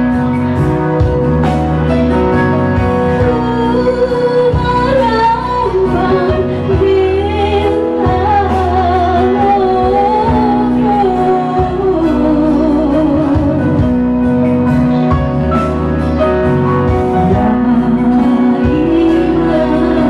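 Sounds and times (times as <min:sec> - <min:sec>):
backing music: 0:00.0 - 0:20.0
woman singing into a microphone: 0:03.0 - 0:14.5, 0:16.9 - 0:20.0.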